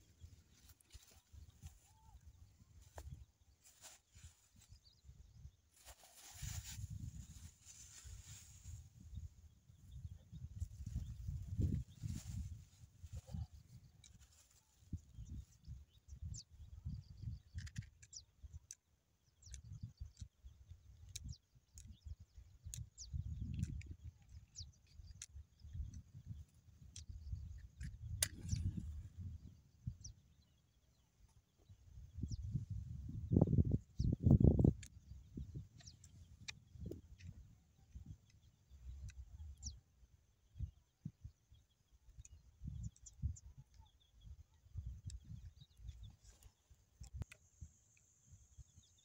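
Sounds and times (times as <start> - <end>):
small birds chirping: 0.0 - 49.0
dry vines handled: 5.7 - 8.8.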